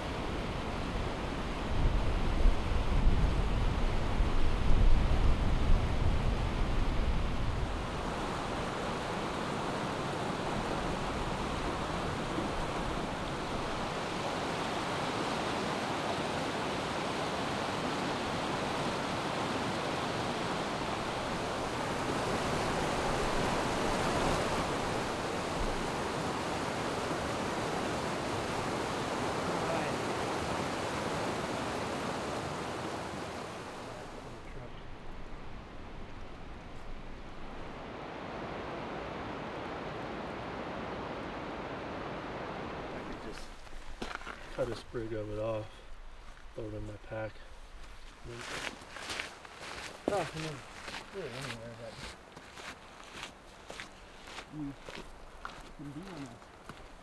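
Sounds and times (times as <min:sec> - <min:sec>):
river rushing over rocks: 0:07.8 - 0:36.4, 0:37.0 - 0:44.2.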